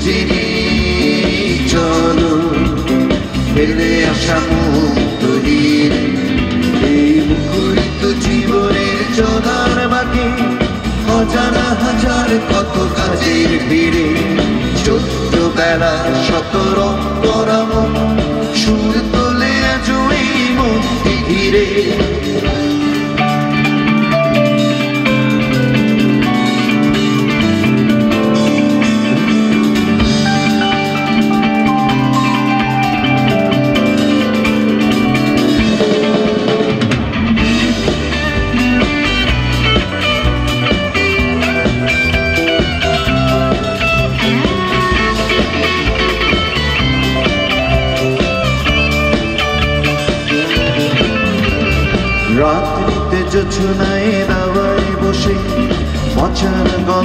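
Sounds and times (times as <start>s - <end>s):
drum kit: 0.0s - 57.0s
electric guitar: 0.0s - 57.0s
low bass notes: 0.0s - 57.0s.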